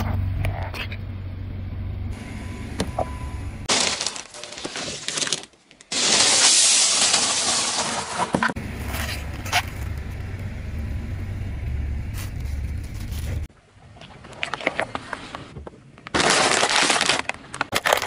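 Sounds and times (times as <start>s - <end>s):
car engine low rumble: 0.0s - 3.7s, 8.6s - 13.5s.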